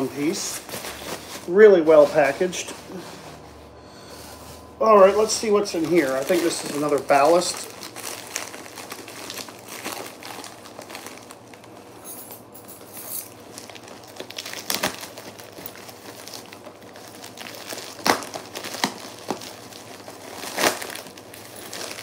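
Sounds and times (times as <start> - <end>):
plastic mailer crinkling: 0.0 - 3.5, 4.8 - 12.0, 13.3 - 22.0
sharp plastic crackles: 5.2 - 11.9, 13.4 - 22.0.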